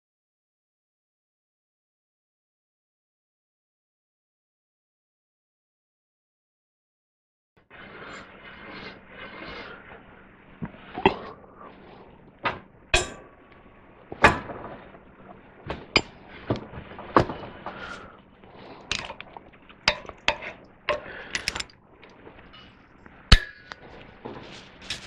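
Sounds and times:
wrench metallic clicks and clanks: 19.9 - 21.7.

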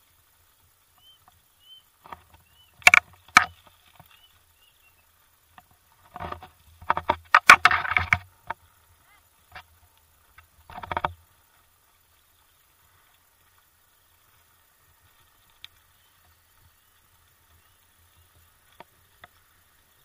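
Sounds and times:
faint bird chirps: 0.9 - 2.8, 3.7 - 5.3, 15.7 - 18.5
bicycle clattering on dirt track: 0.9 - 20.0.

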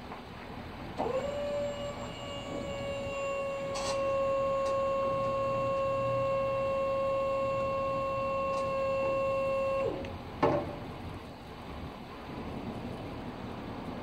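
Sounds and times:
electric motor whining: 1.0 - 10.1
trailer deck clunk: 10.0 - 10.9.

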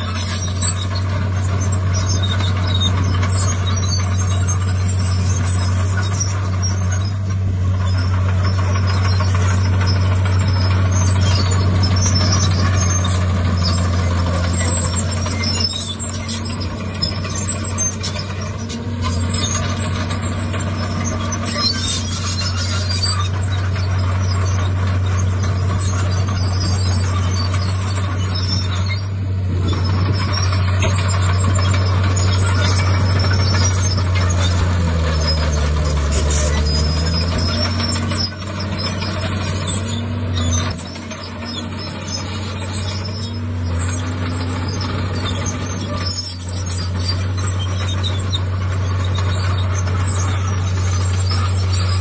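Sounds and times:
bulldozer diesel engine running: 0.0 - 52.0.

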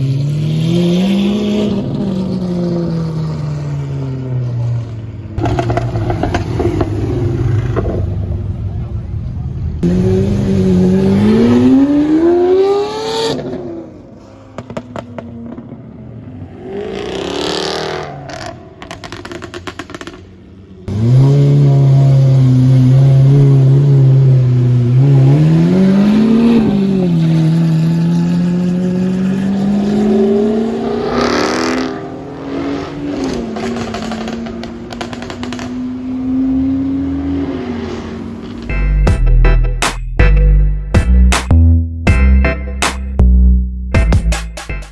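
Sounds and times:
exhaust crackling and popping: 5.4 - 8.1, 18.3 - 20.5, 33.6 - 35.9
sports car engine revving: 5.4 - 8.2, 9.8 - 13.7, 20.9 - 38.7.

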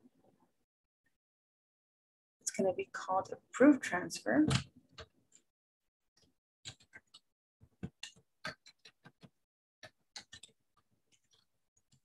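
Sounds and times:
typing on computer keyboard: 6.7 - 7.2, 7.9 - 12.0.

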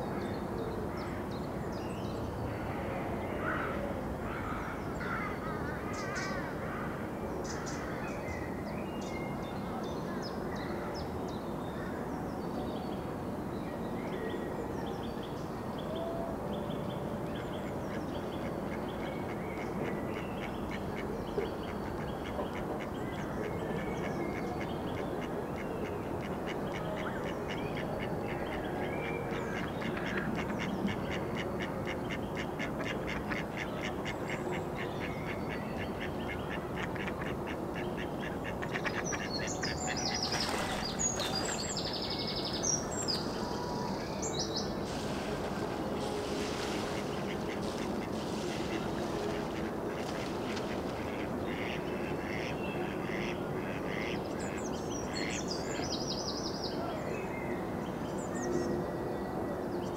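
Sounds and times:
songbirds chirping: 0.0 - 59.9
steady outdoor hiss: 0.0 - 59.9
ducks quacking: 24.0 - 41.7, 44.9 - 55.4.

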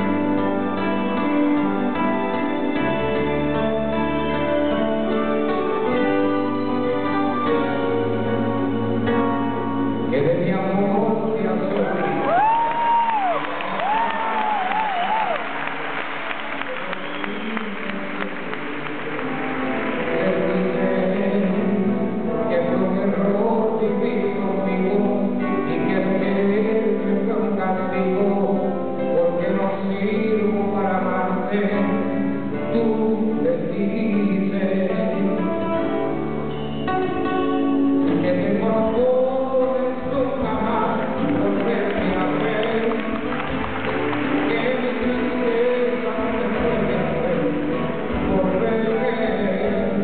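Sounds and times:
plucked acoustic guitar music: 16.5 - 50.0.

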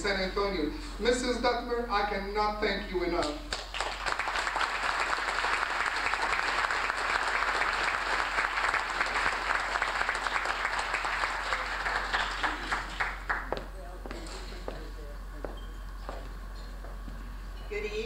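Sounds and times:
audience applauding: 3.5 - 13.6.

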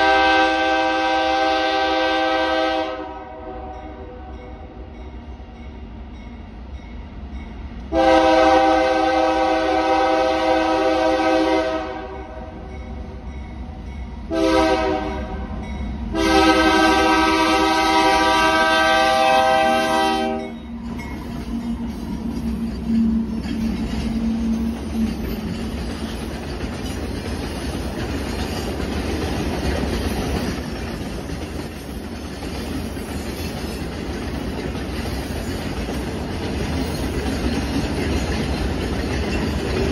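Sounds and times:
locomotive horn blasts: 0.0 - 4.3, 7.9 - 12.6, 14.3 - 20.6
train wheels on rails clacking: 15.6 - 39.9.

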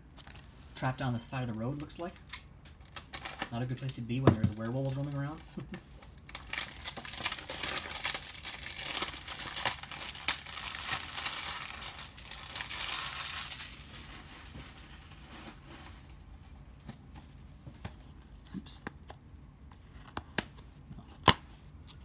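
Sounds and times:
plastic wrap crinkling and tearing: 0.1 - 0.9, 1.8 - 16.3.

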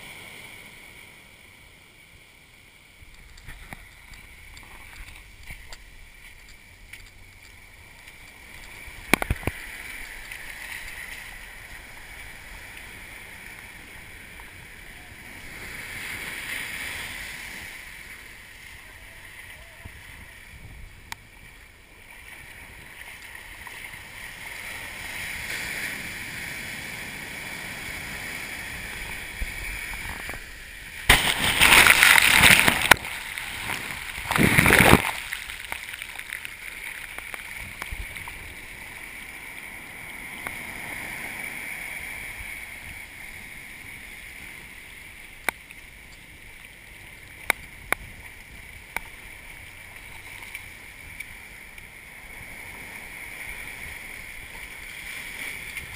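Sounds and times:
faint clicks: 3.1 - 11.8
ocean surf washing on sand: 3.2 - 55.9
wave breaking: 3.3 - 21.2, 22.2 - 44.8
water splash: 27.0 - 38.5.

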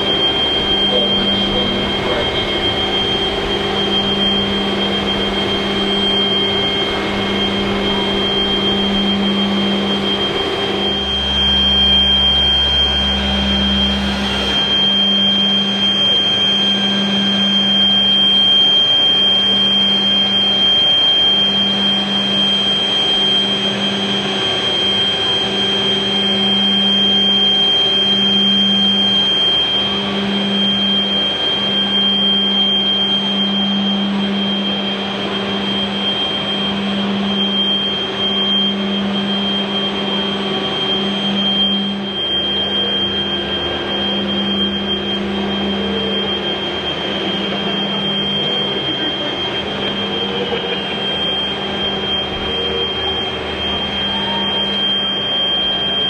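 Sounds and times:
high-pitched whine: 0.0 - 56.0
machinery hum: 0.0 - 56.0
pulsing low tone: 0.0 - 56.0.

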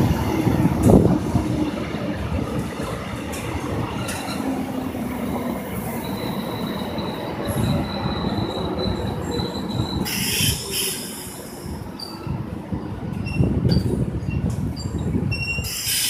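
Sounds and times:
electric train rumbling: 0.0 - 16.0
high wheel squeal: 5.8 - 12.4, 13.3 - 16.0.

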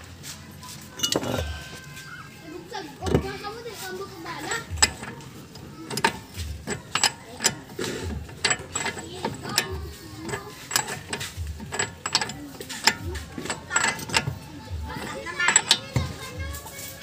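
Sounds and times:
ratchet wrench clicking: 4.4 - 17.0.

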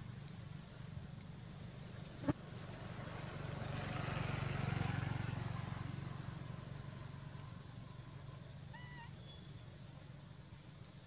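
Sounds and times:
motorcycle engine passing by: 2.2 - 7.8.

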